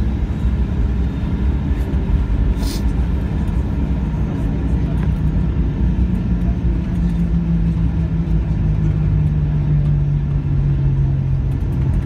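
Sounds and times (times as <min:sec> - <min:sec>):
aircraft cabin rumble: 0:00.0 - 0:12.0.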